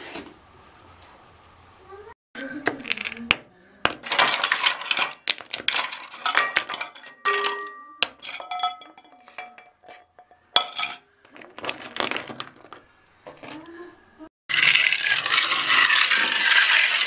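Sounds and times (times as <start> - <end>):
stones knocking and clinking: 2.6 - 12.8.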